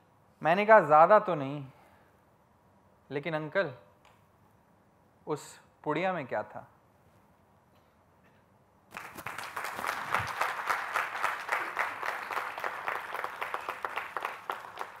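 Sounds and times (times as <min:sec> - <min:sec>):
audience applauding: 0:08.9 - 0:15.0.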